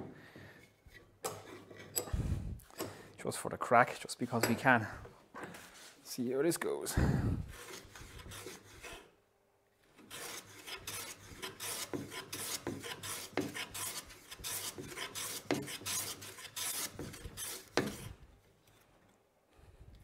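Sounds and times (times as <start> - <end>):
hand plane strokes on wood: 7.5 - 9.1, 10.0 - 18.2.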